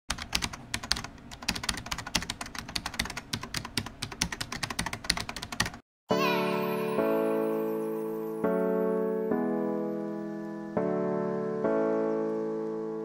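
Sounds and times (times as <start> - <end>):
keyboard typing clicks: 0.1 - 5.8
soft piano music: 6.1 - 13.0.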